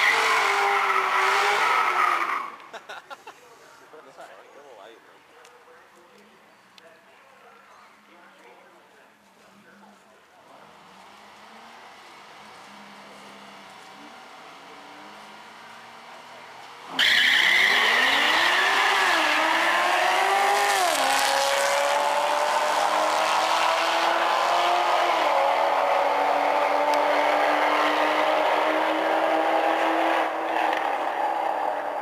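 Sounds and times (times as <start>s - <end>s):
cars accelerating at full throttle: 0.0s - 2.7s, 10.5s - 32.0s.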